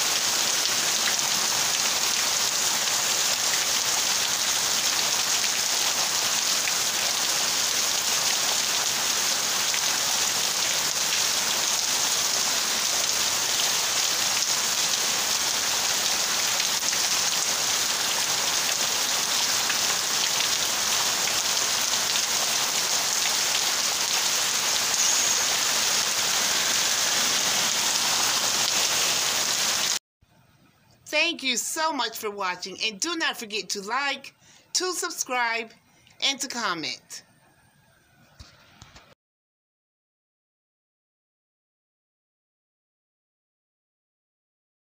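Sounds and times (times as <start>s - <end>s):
heavy rain pouring: 0.0s - 30.0s.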